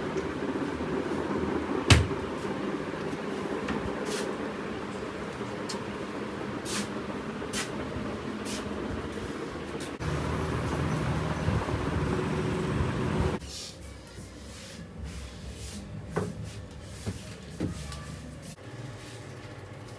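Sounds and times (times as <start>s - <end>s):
wooden cupboard door knocking shut: 1.9s - 2.2s.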